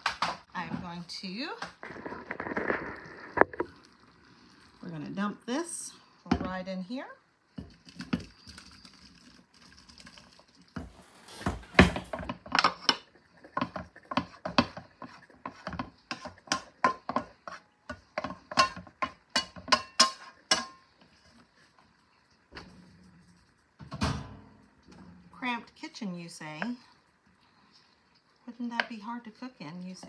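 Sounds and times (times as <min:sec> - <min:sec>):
wooden spoon scraping a skillet: 0:01.6 - 0:04.7, 0:10.7 - 0:21.9.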